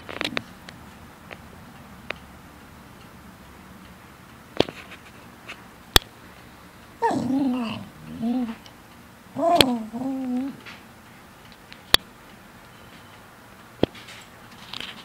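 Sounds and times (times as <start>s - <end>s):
dog whining vocalization: 7.0s - 8.6s, 9.4s - 10.7s.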